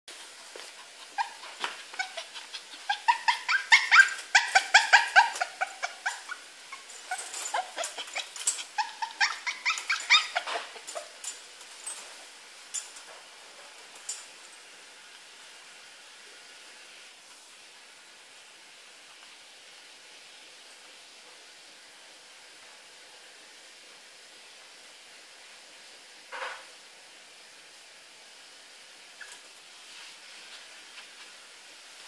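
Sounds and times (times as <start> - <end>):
dog whining and yipping: 0.8 - 11.2.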